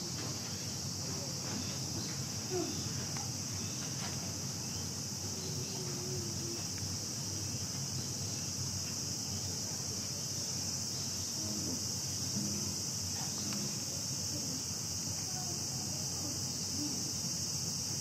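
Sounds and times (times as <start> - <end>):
faint murmur of voices: 0.0 - 18.0
insect chorus drone: 0.0 - 18.0.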